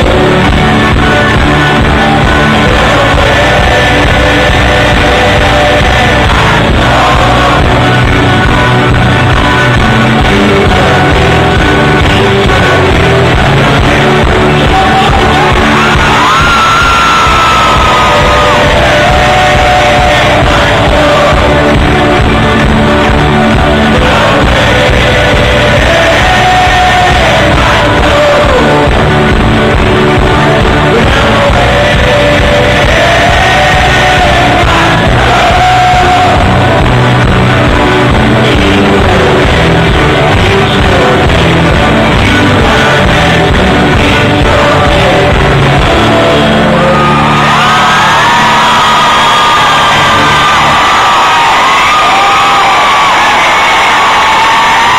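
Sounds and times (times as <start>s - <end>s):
voices singing together: 0.0s - 48.8s
crowd cheering and whistling: 0.0s - 54.9s
folk band playing loudly: 0.0s - 54.9s.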